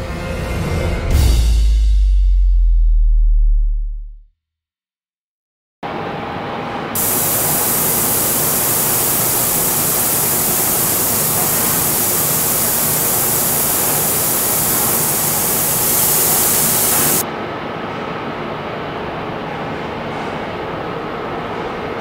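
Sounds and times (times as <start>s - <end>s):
laser hiss: 7.0s - 17.2s
steady machine noise: 7.0s - 17.2s.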